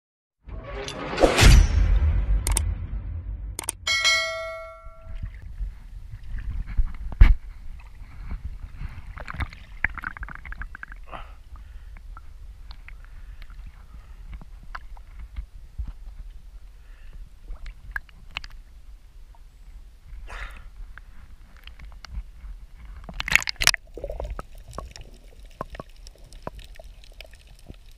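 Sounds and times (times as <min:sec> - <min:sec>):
low rumble: 0:00.5 - 0:06.7
notification bell chime: 0:03.9 - 0:05.2
sea water lapping and splashing: 0:07.5 - 0:12.0.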